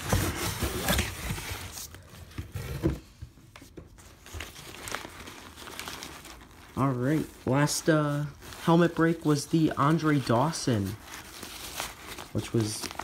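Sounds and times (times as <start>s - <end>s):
nylon bag rustling: 4.1s - 13.0s.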